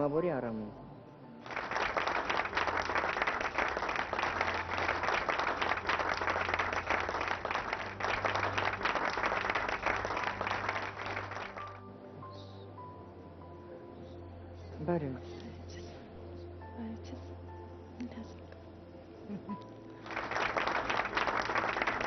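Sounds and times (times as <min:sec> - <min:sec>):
audience applauding: 0:01.4 - 0:11.8, 0:20.0 - 0:22.0.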